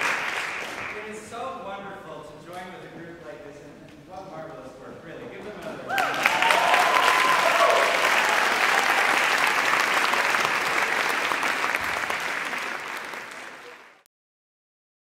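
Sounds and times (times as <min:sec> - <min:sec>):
audience applauding: 0:00.0 - 0:01.2, 0:05.9 - 0:14.1.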